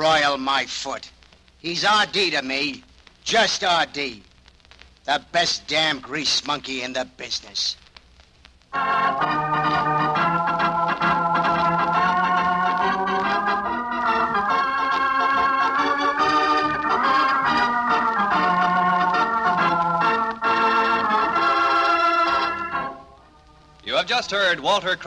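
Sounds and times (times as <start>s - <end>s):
organ playing sustained chords: 8.7s - 24.0s.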